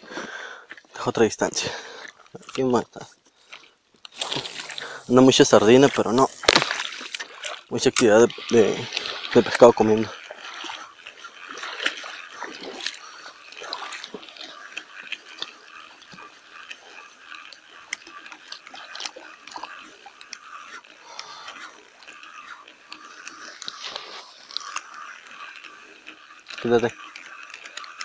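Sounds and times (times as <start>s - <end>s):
spinning reel clicking: 4.1s - 28.0s
soft hiss: 4.2s - 6.9s.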